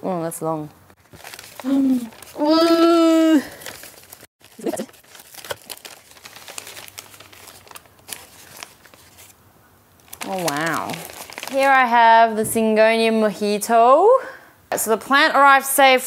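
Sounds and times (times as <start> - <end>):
newspaper crinkling: 1.0 - 9.4, 10.0 - 12.0.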